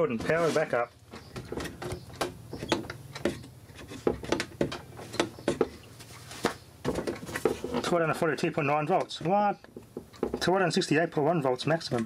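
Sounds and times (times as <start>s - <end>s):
light clicks and knocks: 1.1s - 10.5s.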